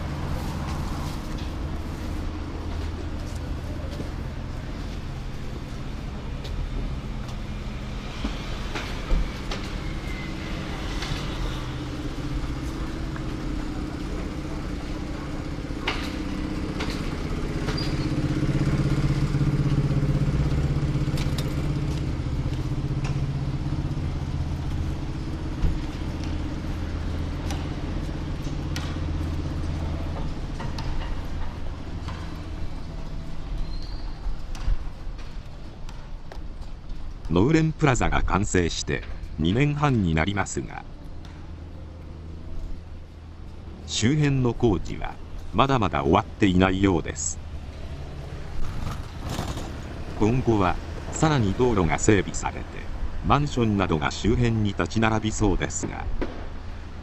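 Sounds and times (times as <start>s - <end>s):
vehicle engine running: 0.0s - 33.6s.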